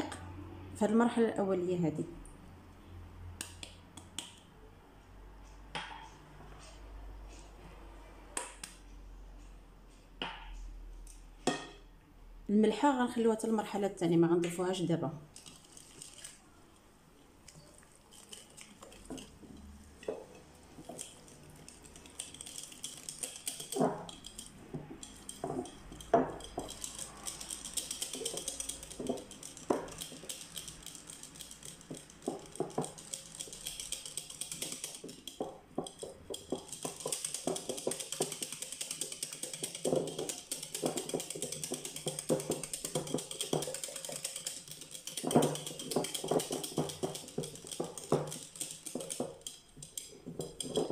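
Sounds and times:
whisk scraping glass bowl: 15.3s - 16.4s, 17.5s - 50.9s.

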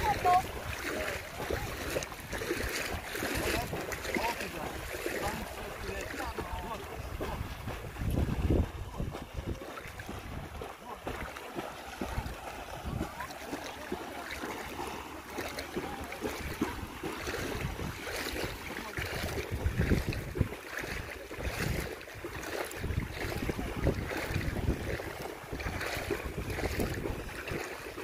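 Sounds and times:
wind gusting on microphone: 6.4s - 10.7s, 17.4s - 21.9s, 22.7s - 27.4s.

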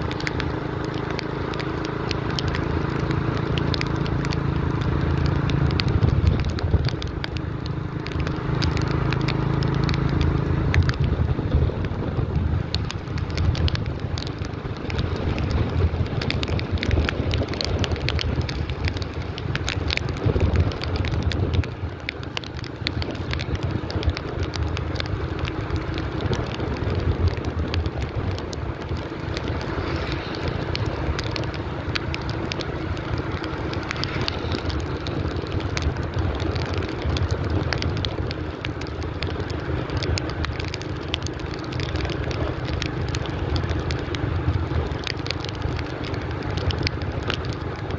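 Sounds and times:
light crackles: 0.0s - 47.9s
wind on microphone: 5.3s - 7.3s, 10.6s - 22.1s.

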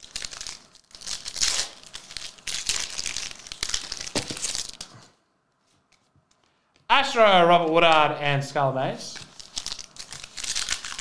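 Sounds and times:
plastic wrapper crinkling: 0.0s - 6.9s, 9.1s - 11.0s.

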